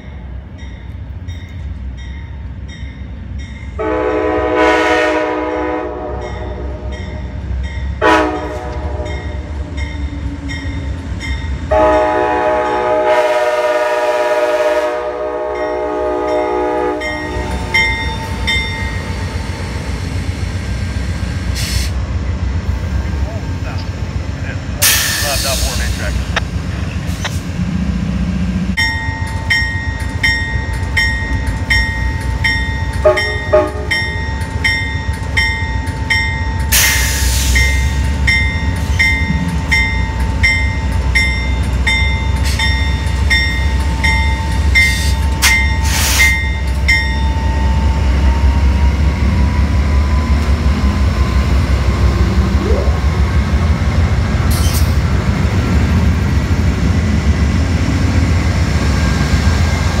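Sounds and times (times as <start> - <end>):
diesel locomotive engine rumbling: 0.0 - 60.0
bell ringing: 16.4 - 19.1, 28.8 - 36.8, 37.6 - 47.9.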